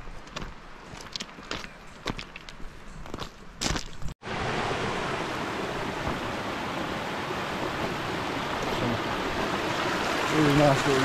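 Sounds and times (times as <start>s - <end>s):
footsteps crunching on stones: 0.0s - 4.2s
stream rushing over boulders: 4.2s - 11.0s.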